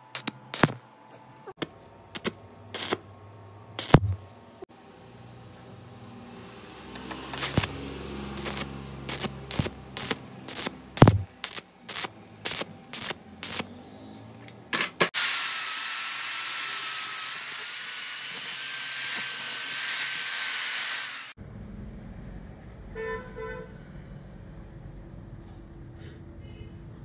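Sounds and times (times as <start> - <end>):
welding arc crackle: 2.1 - 3.1, 3.8 - 4.3, 7.1 - 13.7
angle grinder grinding: 6.8 - 13.7, 15.2 - 21.4.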